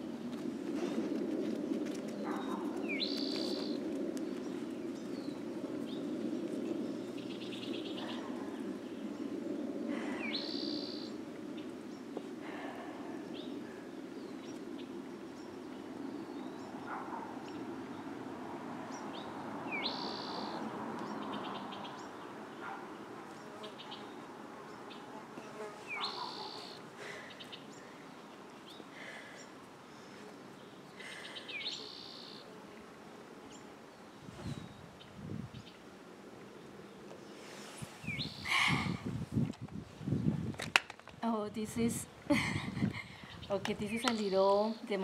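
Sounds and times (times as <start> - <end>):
songbirds calling: 2.1 - 40.3, 41.3 - 45.0
bird chirps: 2.2 - 3.8, 10.2 - 11.7, 19.0 - 22.8, 25.9 - 27.9, 31.0 - 32.5, 38.0 - 38.5.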